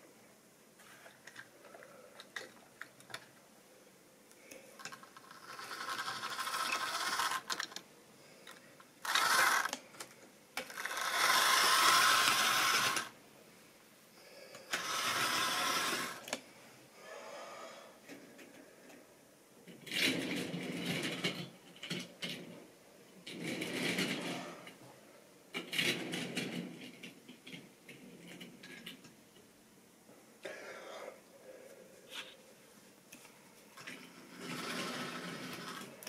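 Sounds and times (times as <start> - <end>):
model train motor whirring: 4.8 - 7.8, 9.0 - 9.8, 10.6 - 13.1, 14.7 - 16.4, 34.3 - 36.0
wheels rattling over rails: 4.8 - 7.8, 34.3 - 36.0.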